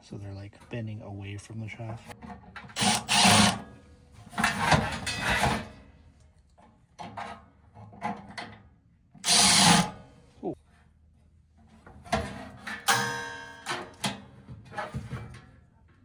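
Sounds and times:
parts clicking and knocking: 2.1 - 3.6
power driver driving screws: 2.7 - 3.7, 9.2 - 10.0.

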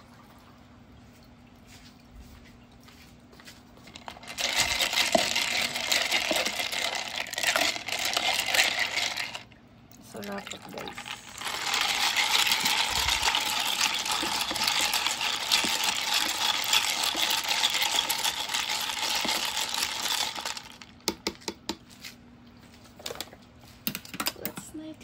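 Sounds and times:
ice cubes clinking in container: 3.9 - 9.5, 10.1 - 21.3.

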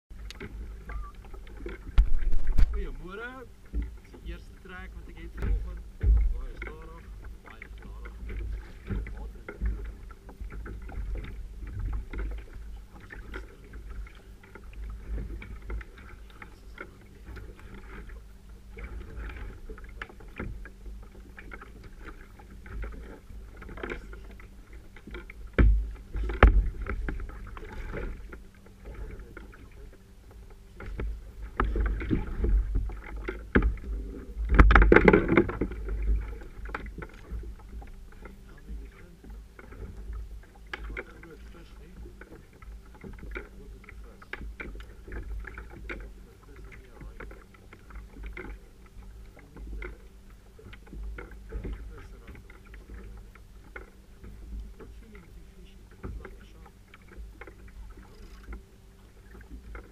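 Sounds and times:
low rumble: 0.1 - 47.2
water slapping against hull: 0.1 - 59.9.

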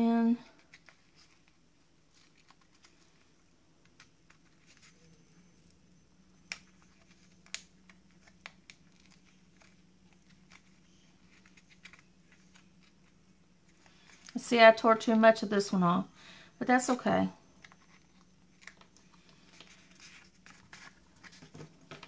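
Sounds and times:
paper rustling: 0.5 - 5.3, 6.4 - 14.4, 17.6 - 22.0.

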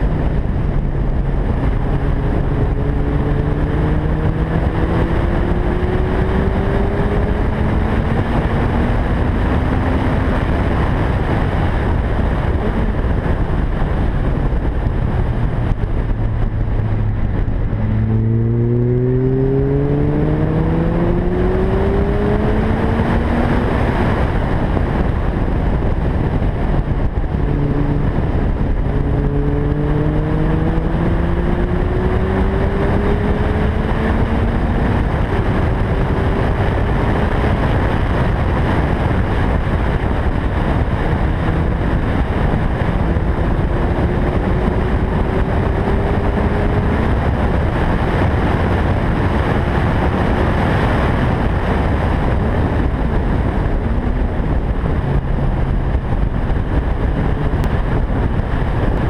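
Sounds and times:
car engine accelerating hard: 0.0 - 59.0
wind noise on microphone: 0.0 - 59.0.

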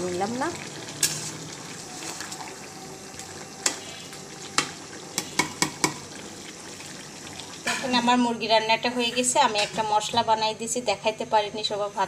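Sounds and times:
curry sizzling in a pan: 0.0 - 12.0
spatula knocking against pan: 4.6 - 6.0.

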